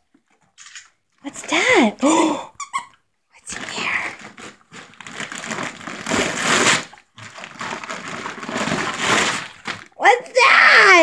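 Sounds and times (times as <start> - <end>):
wrapping paper crinkling and tearing: 3.5 - 10.0.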